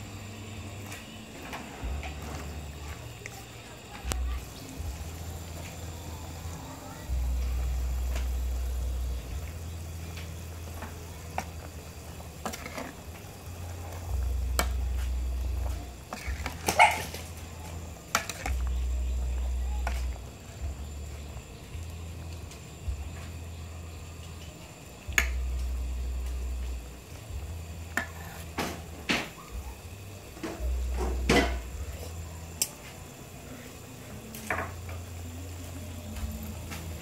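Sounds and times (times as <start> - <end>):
metal ladle scraping a pot: 12.4 - 13.0.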